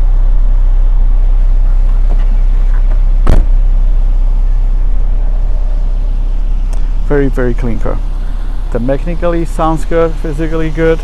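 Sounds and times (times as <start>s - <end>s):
car hatch slamming: 2.0s - 3.6s.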